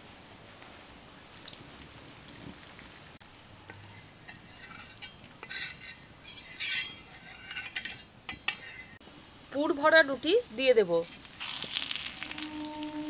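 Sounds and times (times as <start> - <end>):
oil crackling on hot pan: 11.1 - 13.0.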